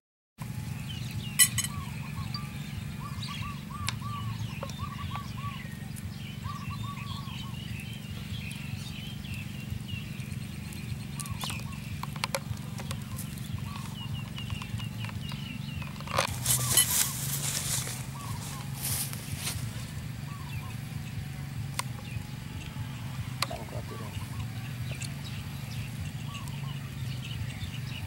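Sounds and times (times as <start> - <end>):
birds calling: 0.4 - 28.0
steady low hum: 0.4 - 28.0
sharp clicks: 7.7 - 16.4, 21.7 - 23.7.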